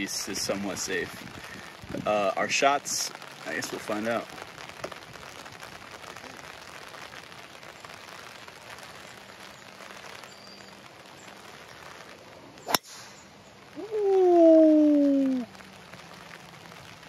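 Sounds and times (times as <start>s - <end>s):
rain falling: 0.0s - 17.0s
golf club striking ball: 12.7s - 13.1s.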